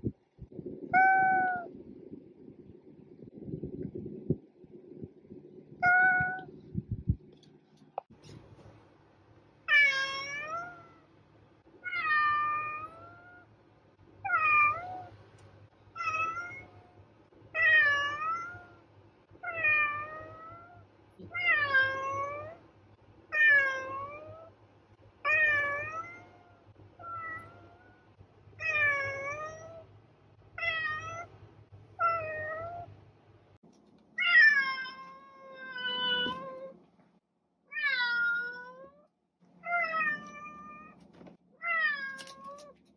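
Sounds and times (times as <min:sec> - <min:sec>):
background hum: 0:00.0 - 0:37.2
cat meowing: 0:05.8 - 0:06.5, 0:09.7 - 0:11.0, 0:16.0 - 0:16.8, 0:25.3 - 0:28.0, 0:37.7 - 0:39.0.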